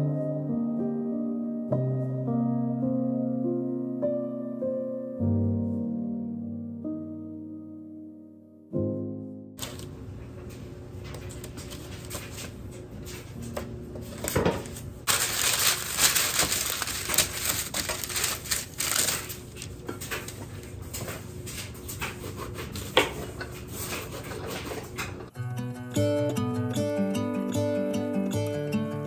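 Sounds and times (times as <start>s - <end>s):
parchment paper rustling: 9.6s - 25.3s.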